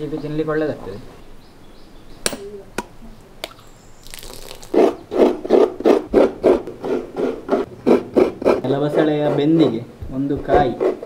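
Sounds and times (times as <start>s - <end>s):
coconut scraping on metal scraper: 4.7s - 11.0s.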